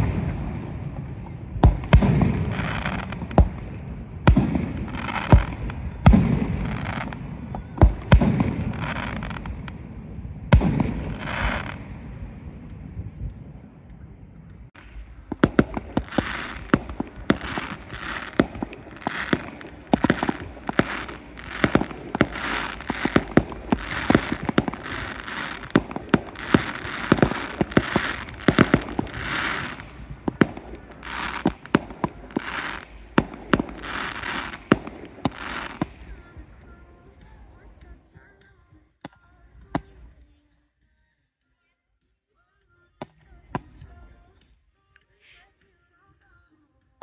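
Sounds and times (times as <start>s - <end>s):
fireworks bangs: 0.0s - 14.0s, 14.7s - 38.3s
fireworks hiss: 10.6s - 11.9s, 14.8s - 37.4s.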